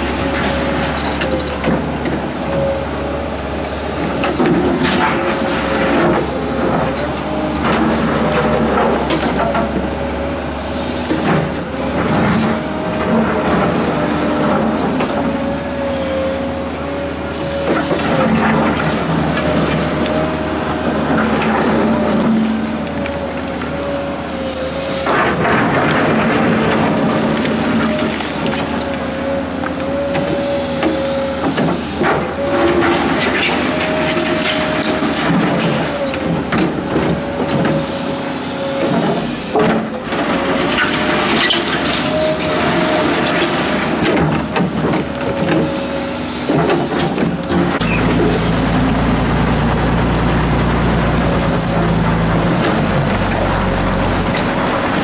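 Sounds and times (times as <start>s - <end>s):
excavator engine and hydraulic whine: 0.0s - 55.0s
bucket scraping rock and gravel: 17.4s - 22.8s, 24.6s - 29.2s, 30.5s - 36.5s, 38.8s - 48.8s.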